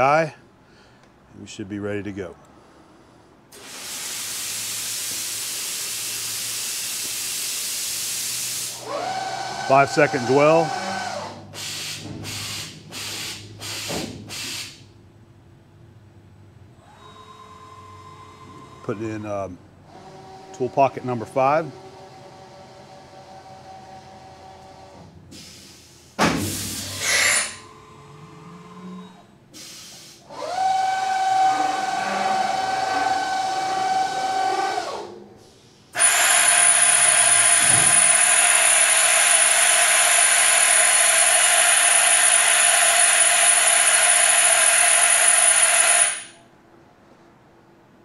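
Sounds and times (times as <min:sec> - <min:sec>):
compressed air blast hissing: 0:03.5 - 0:08.8
machine whir: 0:03.6 - 0:13.9, 0:30.3 - 0:35.2, 0:35.9 - 0:46.4.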